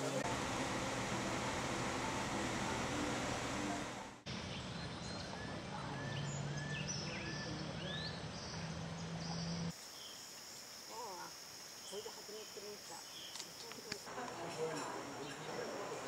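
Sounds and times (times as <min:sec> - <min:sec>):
steady low hum: 0:00.0 - 0:05.9
forest background noise: 0:00.0 - 0:16.0.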